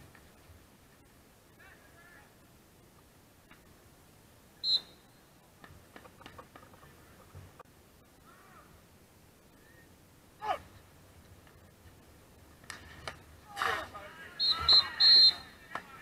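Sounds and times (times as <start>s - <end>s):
short whistle blast: 4.6s - 5.1s, 14.4s - 15.5s
person shouting: 10.4s - 10.6s.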